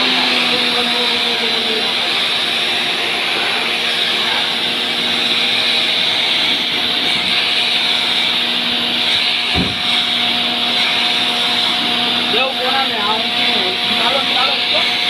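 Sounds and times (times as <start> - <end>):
pressure washer motor hum: 0.0 - 15.0
short low thump: 9.5 - 9.8.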